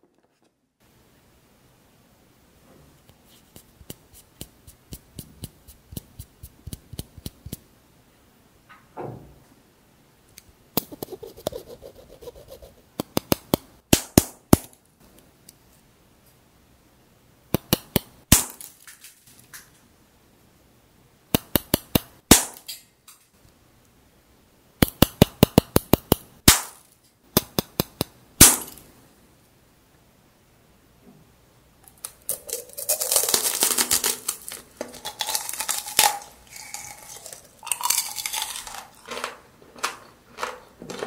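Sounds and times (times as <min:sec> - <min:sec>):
tapping hard candy shell: 0:31.9 - 0:41.0.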